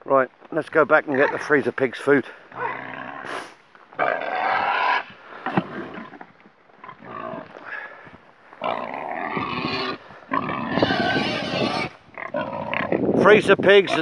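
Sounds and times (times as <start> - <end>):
pigs grunting and squealing: 1.0 - 1.7, 2.5 - 7.6, 8.6 - 13.1.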